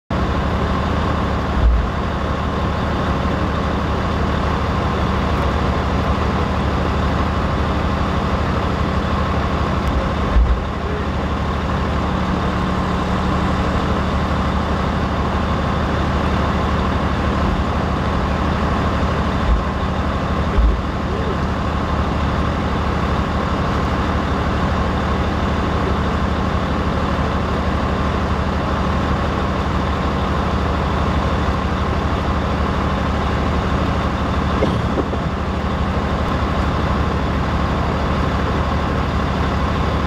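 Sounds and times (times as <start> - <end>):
large vehicle engine idling: 0.1 - 40.0
brief low thumps: 34.6 - 35.4.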